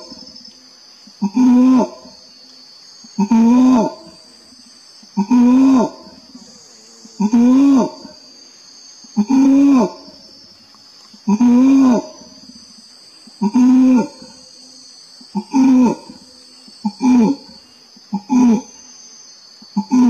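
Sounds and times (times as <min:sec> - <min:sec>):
high insect buzz: 0:00.0 - 0:20.0
orangutan long calls: 0:01.2 - 0:02.2, 0:03.1 - 0:04.2, 0:05.2 - 0:08.2, 0:09.2 - 0:10.2, 0:11.2 - 0:12.5, 0:13.3 - 0:14.4, 0:15.3 - 0:18.8, 0:19.8 - 0:20.0.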